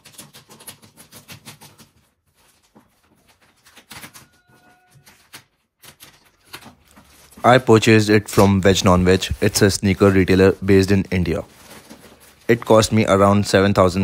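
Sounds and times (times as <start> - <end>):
plastic bag crinkling and tearing: 3.3 - 13.0.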